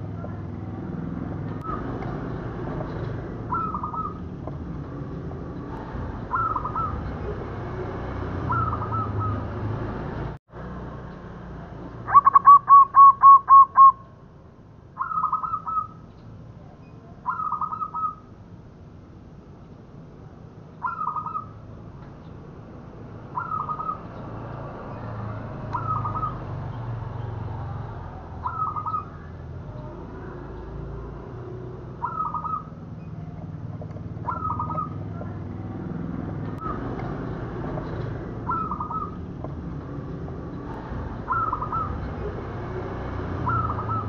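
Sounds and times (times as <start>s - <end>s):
dove cooing: 3.4s - 4.3s, 6.2s - 7.4s, 8.4s - 9.6s, 12.1s - 14.0s, 28.4s - 30.4s, 32.0s - 32.8s, 34.1s - 35.4s, 38.4s - 39.3s, 41.2s - 42.1s, 43.4s - 44.0s.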